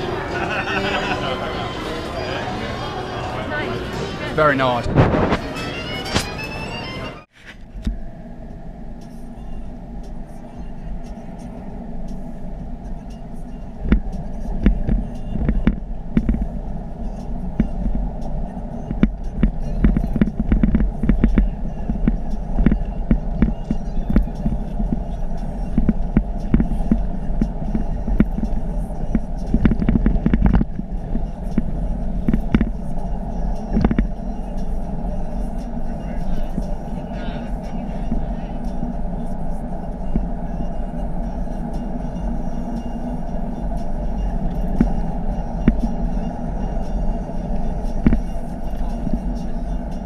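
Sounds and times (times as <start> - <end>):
tyre and road rumble: 0.0 - 50.0
sharp ticks: 18.9 - 34.8, 44.4 - 46.1, 47.8 - 49.6.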